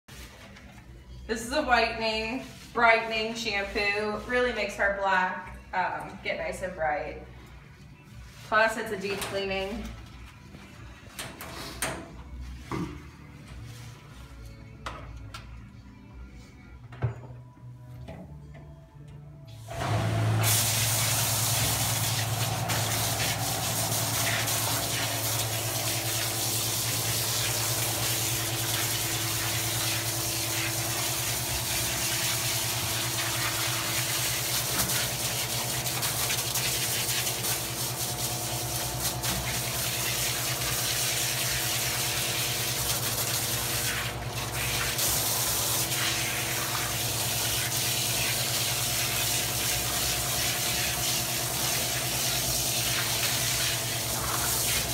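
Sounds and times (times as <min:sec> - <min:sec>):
hose spraying water: 0:19.6 - 0:54.9
water splashing on a metal tub: 0:19.7 - 0:54.9.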